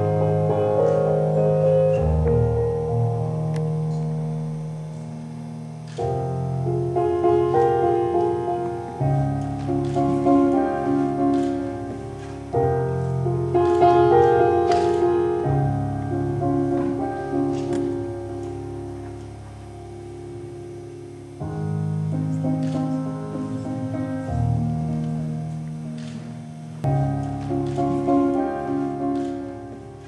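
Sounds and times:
slow instrumental music: 0:00.0 - 0:30.0.

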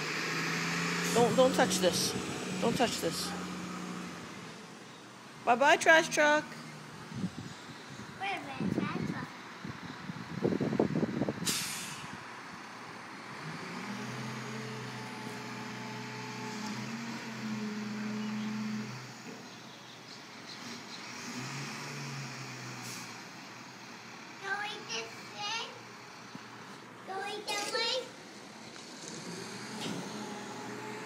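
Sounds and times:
truck engine droning: 0:00.0 - 0:08.2, 0:09.3 - 0:31.0
air brakes hissing: 0:11.4 - 0:12.2.

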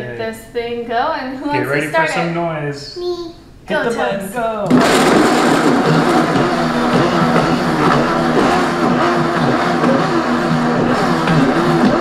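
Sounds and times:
blender grinding frozen fruit: 0:04.7 - 0:12.0.

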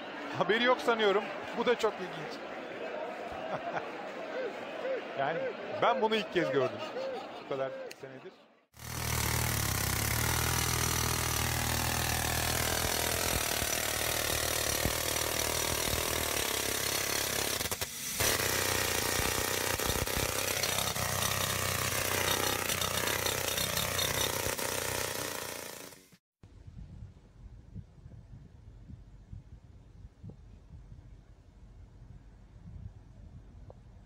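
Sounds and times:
jackhammer hammering concrete: 0:08.8 - 0:26.2.

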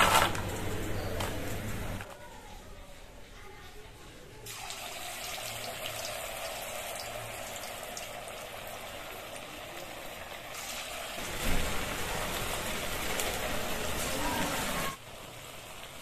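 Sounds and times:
batter sizzling in hot oil: 0:04.5 - 0:16.0.

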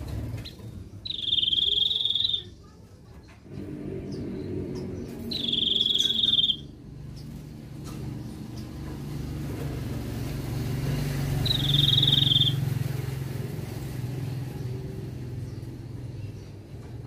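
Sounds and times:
vehicle engine rumble: 0:00.0 - 0:17.0
bird trill: 0:00.4 - 0:02.7, 0:04.0 - 0:07.4, 0:11.3 - 0:12.9.

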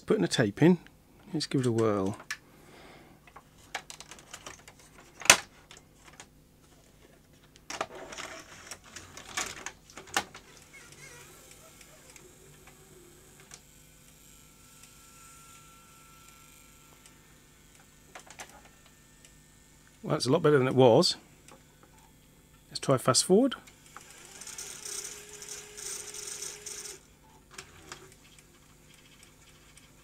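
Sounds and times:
tape deck motor running: 0:07.9 - 0:20.0, 0:23.6 - 0:30.0.

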